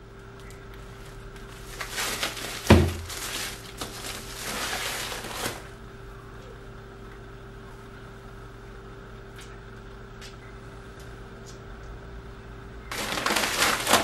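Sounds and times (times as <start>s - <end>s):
plastic mailer bag crinkling: 0.4s - 5.8s, 12.9s - 14.0s
bag thumping on desk: 2.7s - 3.1s.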